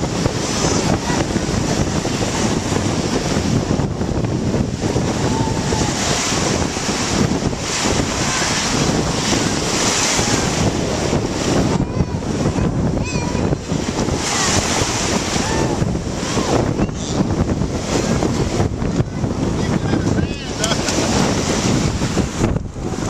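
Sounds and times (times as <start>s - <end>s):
surf washing over sand: 0.0s - 23.0s
wind on microphone: 0.0s - 23.0s.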